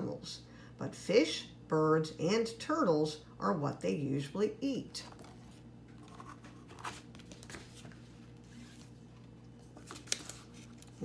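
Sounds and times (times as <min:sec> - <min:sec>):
faint steady hum: 0:00.0 - 0:11.0
paper rustling of books: 0:05.1 - 0:11.0.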